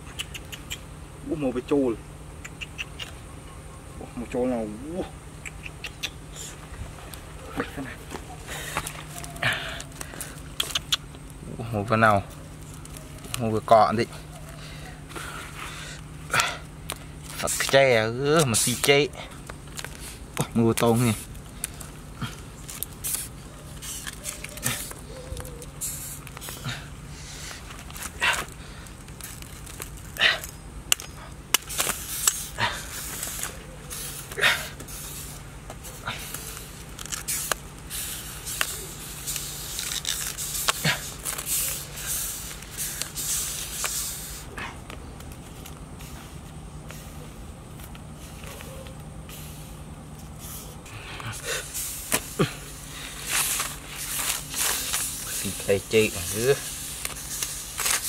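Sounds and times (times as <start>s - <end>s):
sharp clicks: 0.0s - 0.9s, 2.4s - 3.2s, 5.4s - 6.2s, 10.4s - 11.3s
low steady hum: 0.0s - 58.0s
beetles clicking in basket: 8.1s - 14.5s, 16.4s - 26.7s
rustling swishes of bananas: 31.6s - 44.6s, 45.3s - 58.0s.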